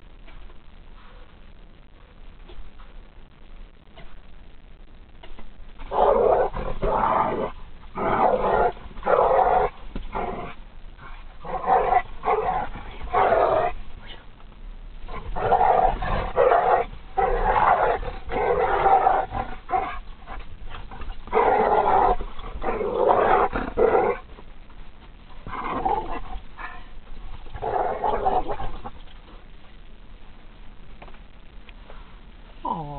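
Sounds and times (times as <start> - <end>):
dogs growling in play: 5.8 - 13.8, 15.0 - 24.5, 25.4 - 29.3.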